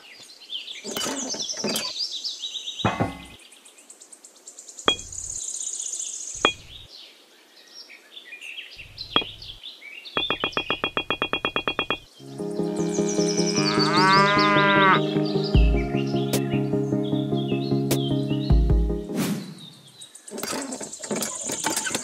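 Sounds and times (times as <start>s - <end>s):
sharp knocks: 2.9s - 3.4s, 4.9s - 5.3s, 6.4s - 6.8s, 9.1s - 9.5s, 10.2s - 12.1s
fast run of clicks: 20.4s - 22.0s.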